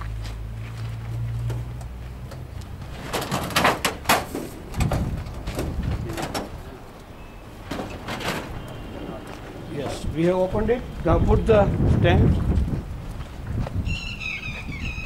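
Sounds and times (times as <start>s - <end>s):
metal door clanking and scraping: 2.2s - 10.5s.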